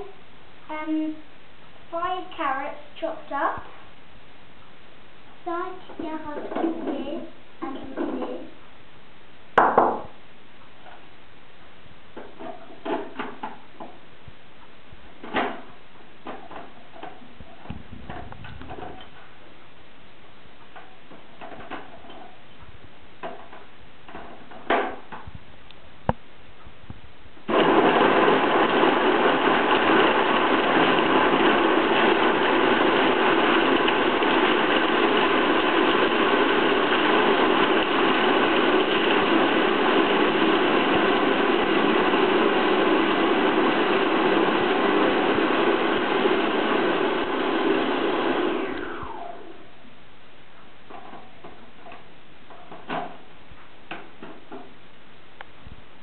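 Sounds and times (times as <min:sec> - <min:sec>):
food processor motor running: 0:27.5 - 0:49.6.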